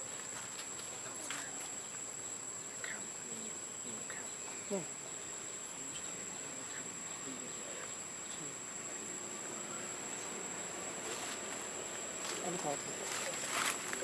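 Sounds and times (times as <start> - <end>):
faint chirps: 0.0 - 12.0
insects droning: 0.0 - 14.0.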